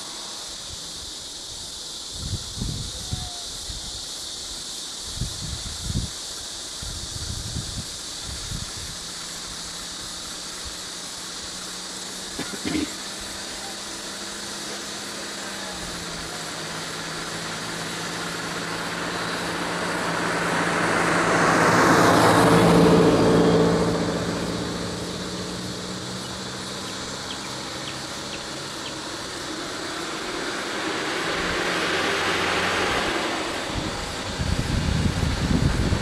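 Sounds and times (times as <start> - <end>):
engines idling hum: 0.0 - 36.0
vehicle passing close by: 13.2 - 36.0.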